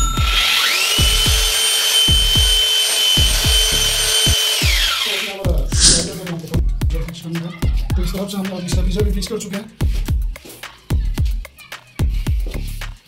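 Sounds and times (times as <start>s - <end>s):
rotary hammer drill whining: 0.2s - 6.2s.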